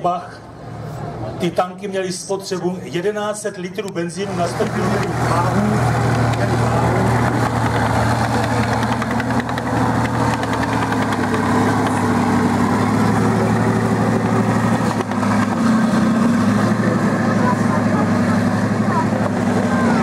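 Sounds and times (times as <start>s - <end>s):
tank engine droning: 4.2s - 20.0s.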